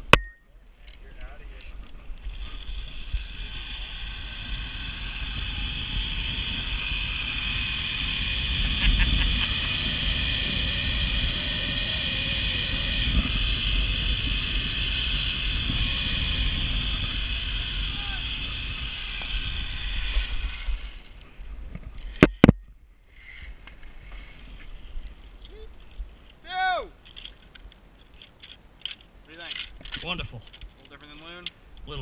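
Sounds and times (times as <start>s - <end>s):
zip-line pulleys whining on cable: 1.8s - 21.2s
wind rushing over microphone: 2.3s - 22.6s.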